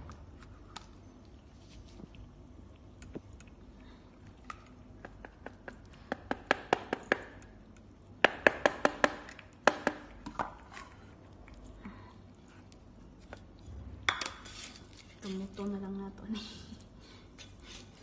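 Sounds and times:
cats eating from metal bowls: 0.1 - 6.0.

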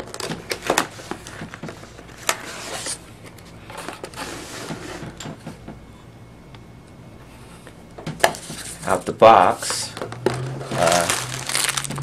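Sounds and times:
packaging rustling and crackling: 9.6 - 12.0.

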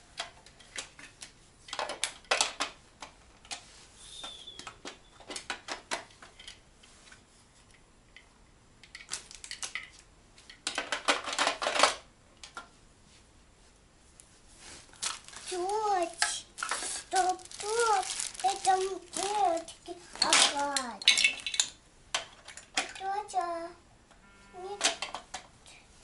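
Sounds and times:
plastic pieces clicking and clattering: 1.7 - 3.6, 8.8 - 12.6, 15.0 - 23.1.

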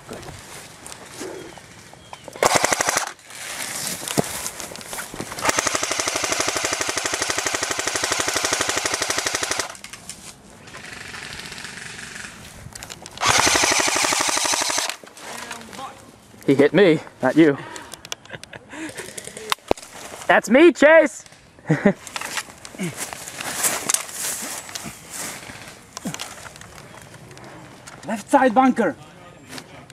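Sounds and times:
electric toy machine gun rattling: 2.4 - 3.2, 5.4 - 9.9, 10.7 - 12.4, 13.2 - 15.0
faint rapid gunfire: 2.4 - 3.2, 13.2 - 15.0.

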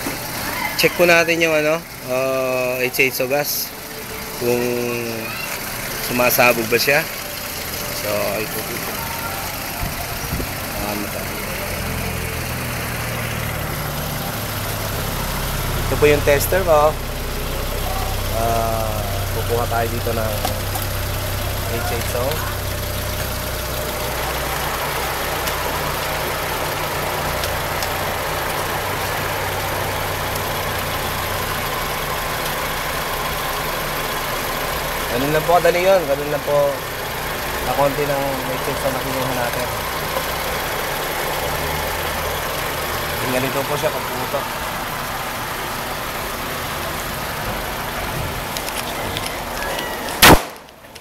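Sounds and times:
car engine idling: 0.0 - 51.0
gas igniting bang: 50.2 - 50.8.

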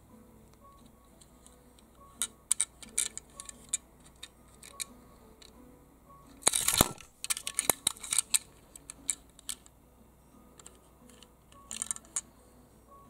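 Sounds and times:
toy car handling scrape: 6.4 - 9.6.

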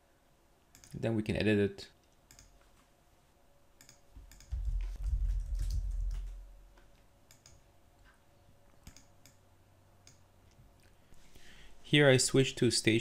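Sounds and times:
mouse clicks: 0.7 - 1.0, 2.3 - 2.6, 3.8 - 4.6, 7.3 - 7.6, 8.8 - 9.4, 10.0 - 10.6
keyboard keystrokes: 3.8 - 6.4, 8.8 - 9.4.

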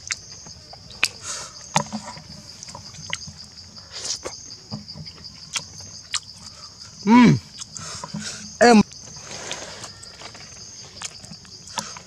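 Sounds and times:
wet chewing clicks: 0.0 - 4.4, 5.4 - 6.6, 7.5 - 8.2, 8.8 - 12.0
high insect drone: 0.0 - 12.0.

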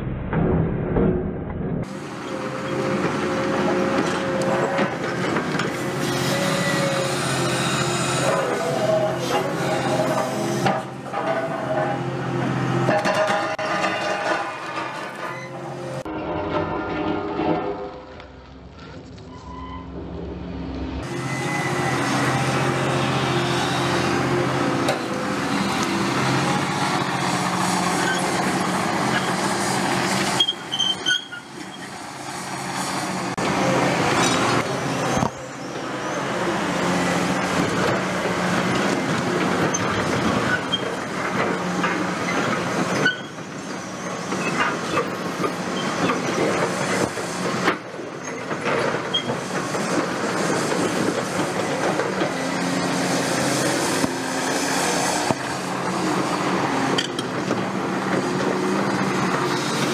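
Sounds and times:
excavator diesel engine: 1.8 - 59.9
concrete crunching and rattling: 12.8 - 19.3.

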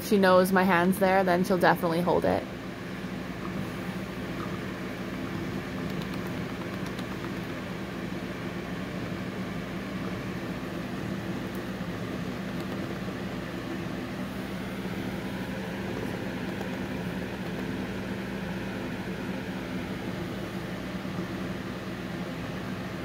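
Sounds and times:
low mechanical hum with hiss: 0.0 - 23.0.

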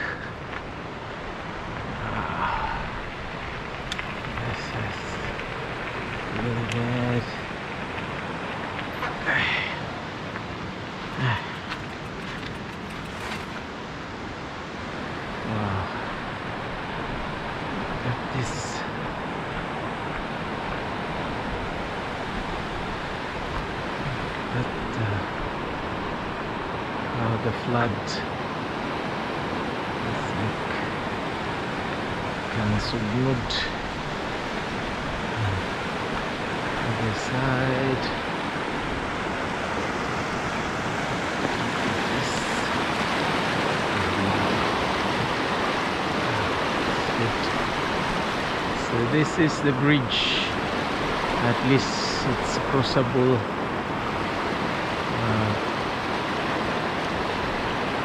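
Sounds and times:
floodwater rushing: 0.0 - 58.0
floodwater rushing against concrete: 33.2 - 58.0.

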